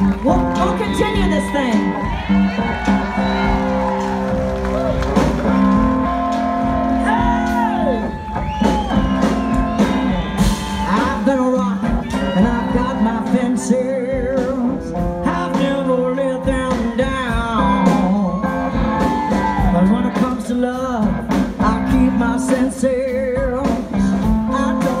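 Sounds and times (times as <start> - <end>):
country-rock band playing: 0.0 - 25.0
woman singing: 10.8 - 18.6, 19.6 - 25.0.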